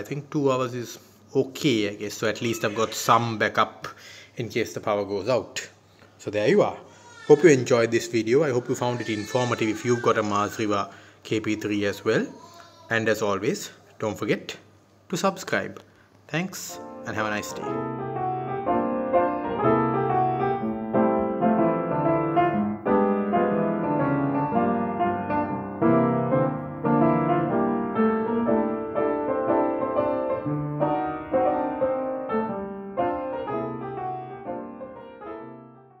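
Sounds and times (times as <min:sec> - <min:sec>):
piano music: 0:16.8 - 0:36.0.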